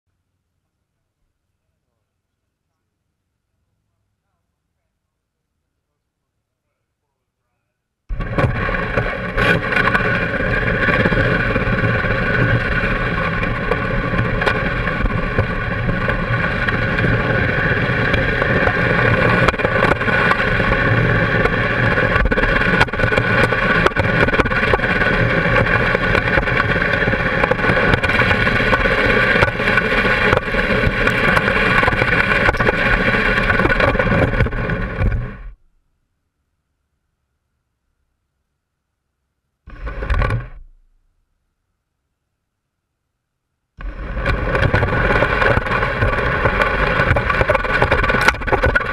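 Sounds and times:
three-wheeler engine running: 0:08.1 - 0:35.6, 0:43.8 - 0:48.9.

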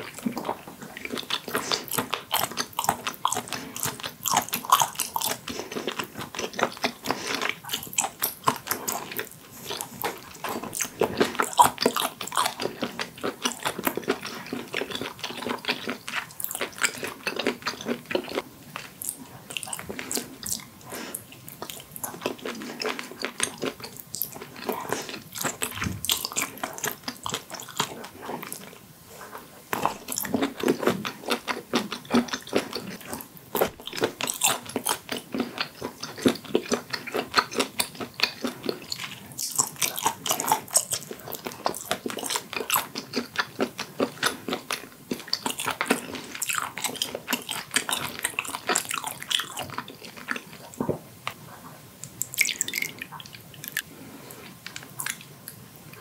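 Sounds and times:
person chewing with mouth clicks: 0:00.0 - 0:56.0.

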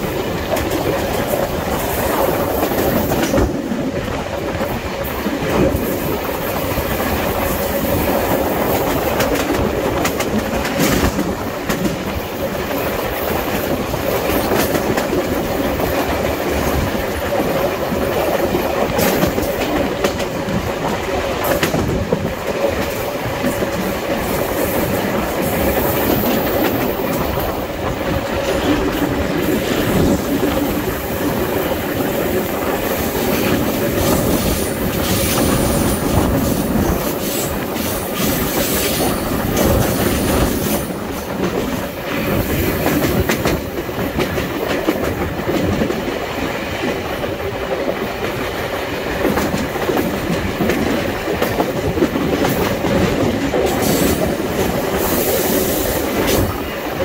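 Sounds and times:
train wheels rumbling on rails: 0:00.0 - 0:57.0.

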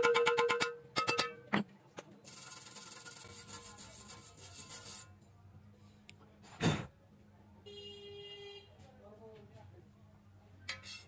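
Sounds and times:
wire brush scrubbing steel: 0:02.3 - 0:05.2.

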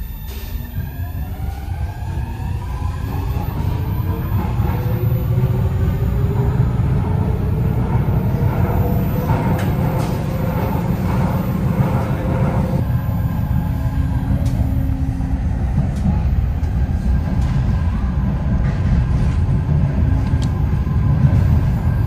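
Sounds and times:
wheels rumbling on track: 0:00.0 - 0:22.0.

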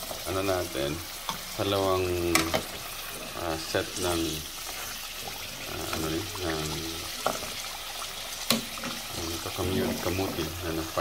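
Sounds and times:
food sizzling in hot oil: 0:00.0 - 0:11.0
person speaking: 0:09.2 - 0:11.0.

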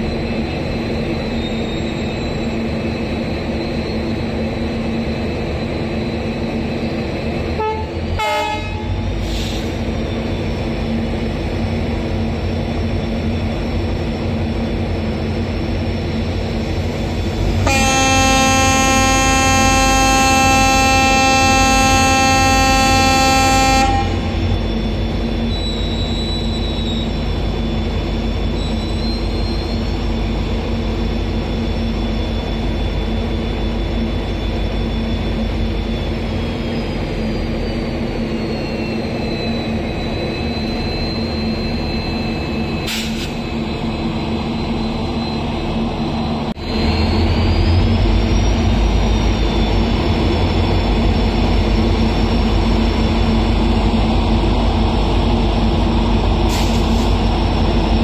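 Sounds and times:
locomotive engine droning: 0:00.0 - 0:58.0
locomotive horn blowing: 0:07.6 - 0:09.0, 0:17.6 - 0:24.4.

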